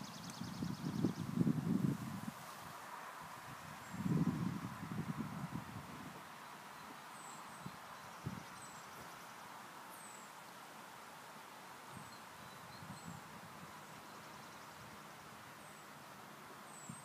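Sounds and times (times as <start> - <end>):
bird chirping: 0.0 - 1.3, 12.0 - 15.9
steady hiss: 1.3 - 17.0.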